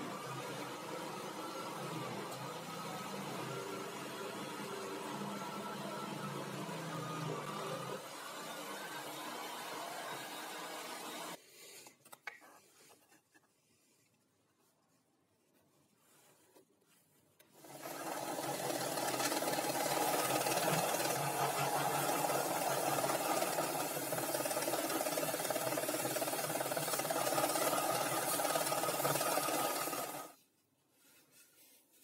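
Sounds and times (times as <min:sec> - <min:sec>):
belt sander sanding wood: 0:17.6 - 0:30.4.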